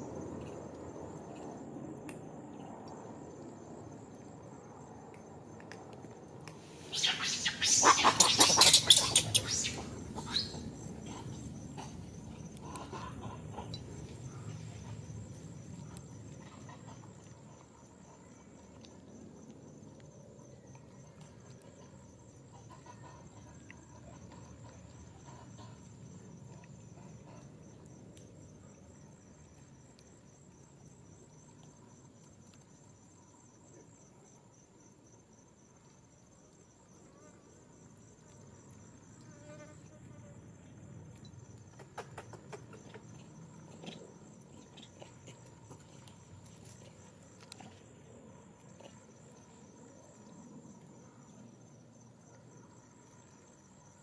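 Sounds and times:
insect trilling: 0:06.8 - 0:14.9.

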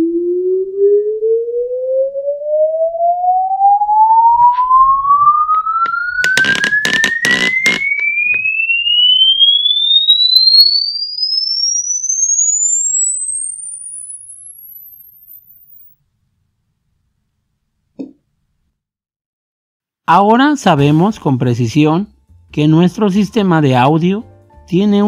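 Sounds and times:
sine wave sweep tone: 0:00.0 - 0:16.0
noisy crackles: 0:06.2 - 0:08.0.

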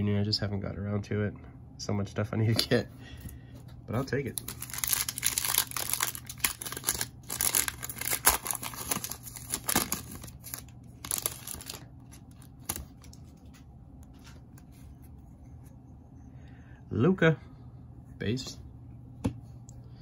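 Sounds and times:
cards rustling: 0:03.9 - 0:15.2
card pack wrapper tearing: 0:04.3 - 0:13.2.

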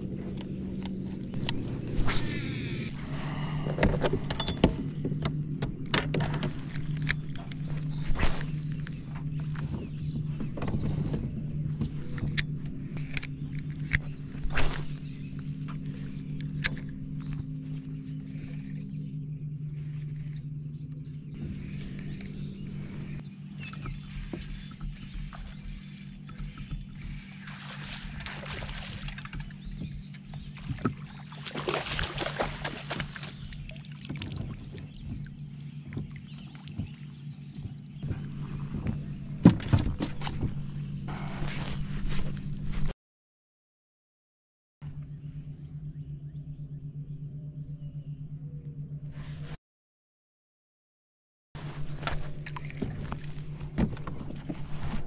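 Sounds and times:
low mechanical hum: 0:00.0 - 0:43.0, 0:44.8 - 0:49.6, 0:51.6 - 0:55.0
sharp clicks and knocks: 0:03.8 - 0:07.9
water splashing: 0:23.8 - 0:29.6, 0:30.6 - 0:37.1.

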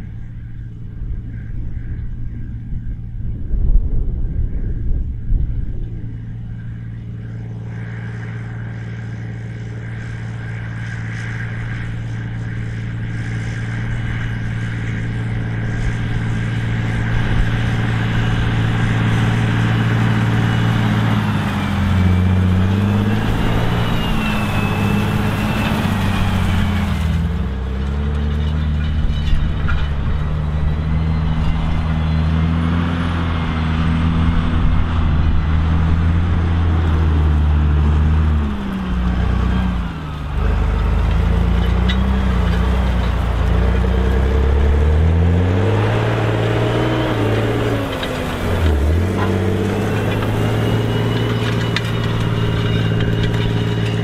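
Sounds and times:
tractor diesel engine under load: 0:06.2 - 0:54.0.

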